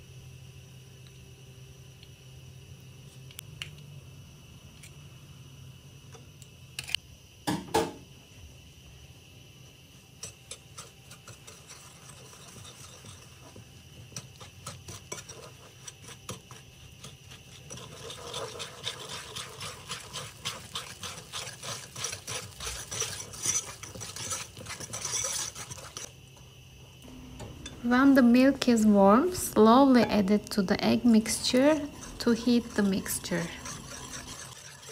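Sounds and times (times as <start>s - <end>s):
whisk beating in bowl: 10.5s - 26.1s, 31.0s - 34.9s.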